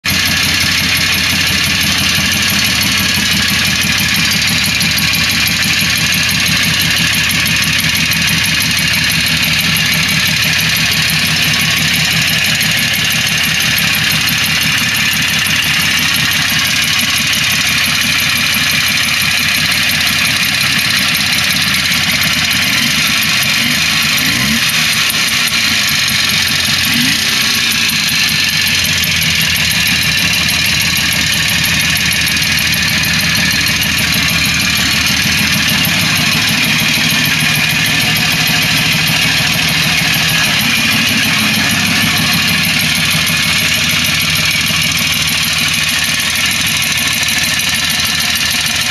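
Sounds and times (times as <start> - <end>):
two-stroke engine idling: 0.0 - 48.9.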